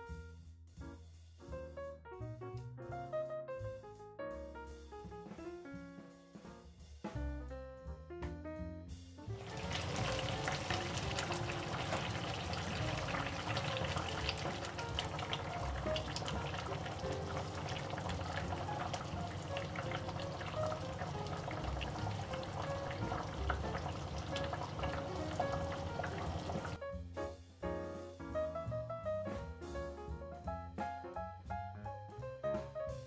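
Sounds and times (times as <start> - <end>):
soft background music: 0.0 - 33.0
curry bubbling in pot: 9.3 - 26.8.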